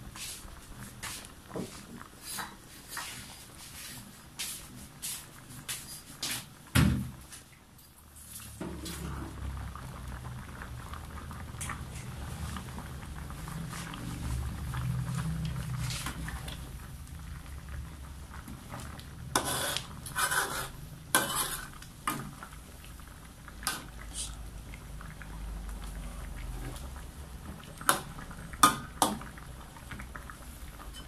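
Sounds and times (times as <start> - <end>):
curry simmering: 0.0 - 31.0
metal ladle scraping a wok: 19.3 - 21.8.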